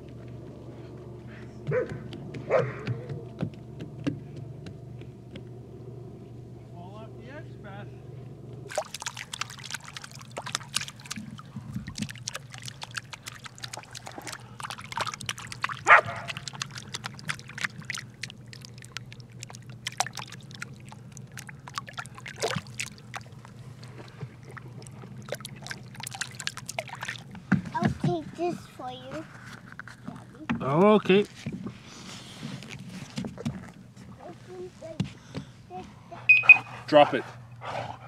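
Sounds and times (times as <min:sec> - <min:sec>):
dog barking: 0:01.7 - 0:02.9, 0:15.8 - 0:16.4.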